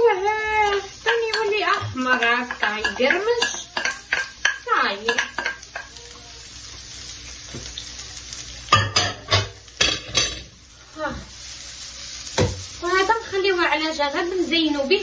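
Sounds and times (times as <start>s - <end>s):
onions sizzling in a frying pan: 0.0s - 15.0s
pan and wooden spoon clattering: 1.1s - 6.0s, 8.7s - 10.5s.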